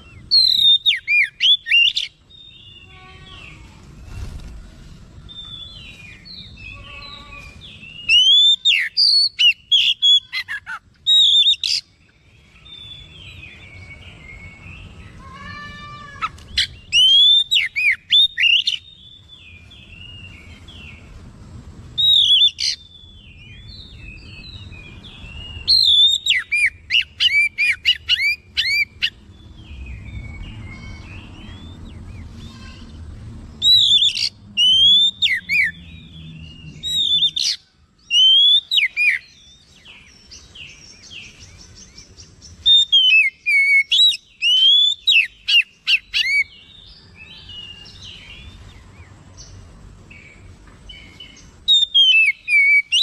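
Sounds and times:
bird whistling song phrases: 0.0s - 3.6s, 5.3s - 14.9s, 16.2s - 20.5s, 22.0s - 29.2s, 33.6s - 35.8s, 36.6s - 46.7s, 50.9s - 53.0s.

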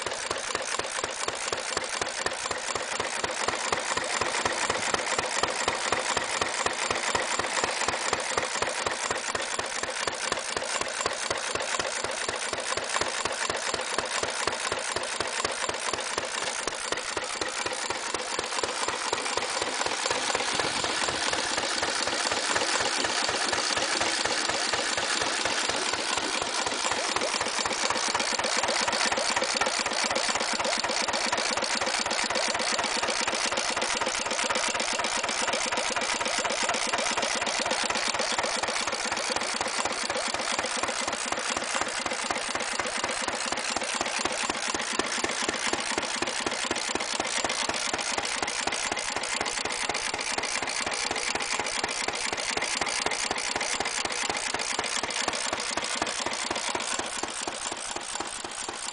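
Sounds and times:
stationary petrol engine running: 0.0s - 58.9s.

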